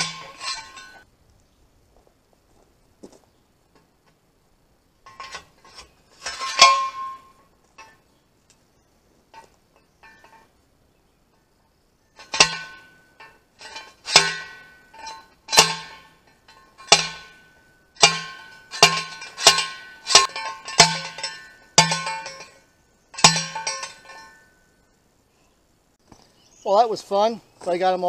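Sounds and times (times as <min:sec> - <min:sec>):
post driver clanging on metal: 0:00.0 - 0:01.0, 0:05.0 - 0:08.0, 0:09.3 - 0:10.5, 0:12.2 - 0:24.5.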